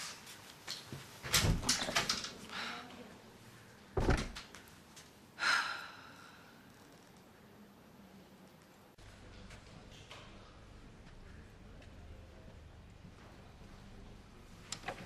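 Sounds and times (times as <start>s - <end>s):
door closing thud: 4.0s - 4.4s
door clicks and knocks: 4.0s - 4.5s.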